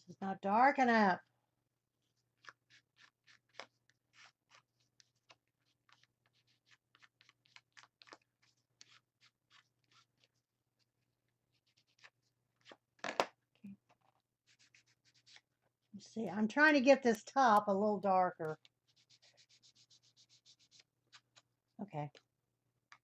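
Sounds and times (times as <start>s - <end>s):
ink pad scratching on paper: 14.5s - 15.4s, 18.0s - 21.4s.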